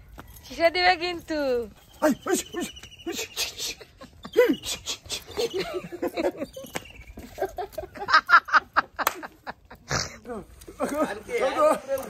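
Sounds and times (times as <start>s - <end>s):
people talking and laughing: 1.7s - 12.0s
short high squeaks: 6.4s - 7.4s.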